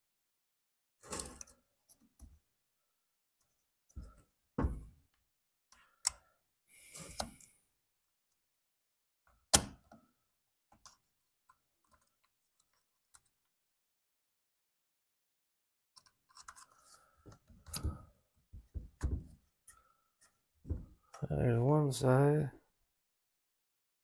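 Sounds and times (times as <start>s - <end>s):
small clicks of plastic and metal parts: 5.7s - 6.3s, 6.9s - 7.5s, 10.7s - 13.6s, 16.0s - 18.1s.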